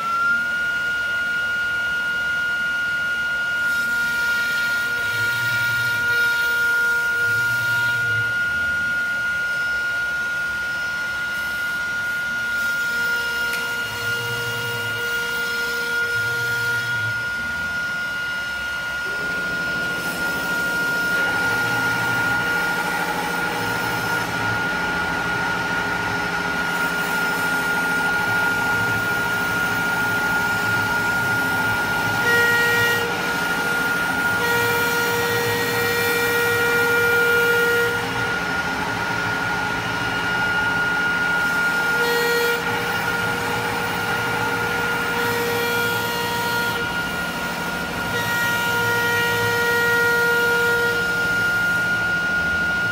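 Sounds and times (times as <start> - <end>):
wood router spindle whining: 0.0 - 52.9
motor tones: 16.0 - 52.9.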